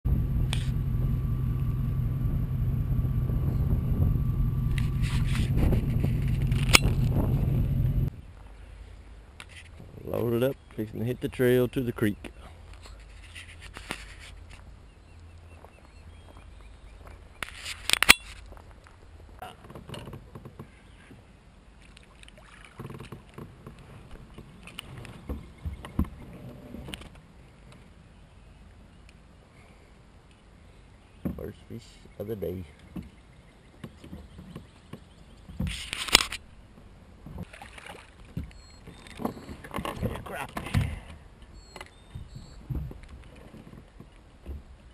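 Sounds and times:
knocks and thumps in a kayak: 0:04.7 - 0:08.0, 0:19.4 - 0:21.3, 0:22.5 - 0:27.2, 0:31.2 - 0:31.5, 0:32.8 - 0:36.0, 0:36.7 - 0:44.9
rustling and scraping: 0:04.7 - 0:08.1, 0:09.4 - 0:09.9, 0:12.6 - 0:14.7, 0:17.4 - 0:21.2, 0:33.9 - 0:37.6.

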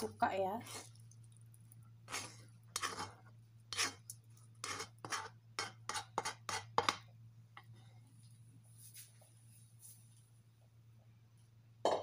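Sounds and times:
utensil scraping metal frying pan: 0:02.1 - 0:07.0.

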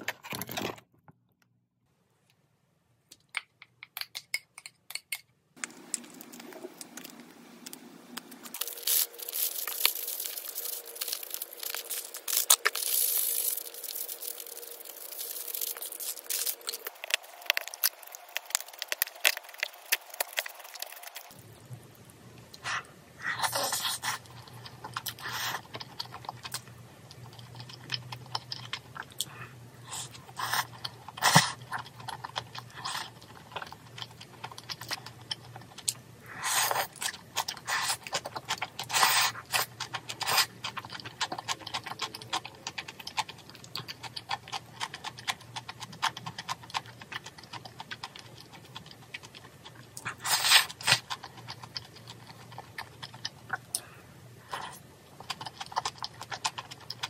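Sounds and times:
wet chewing clicks: 0:08.2 - 0:21.7, 0:30.0 - 0:53.9, 0:54.5 - 0:57.0.

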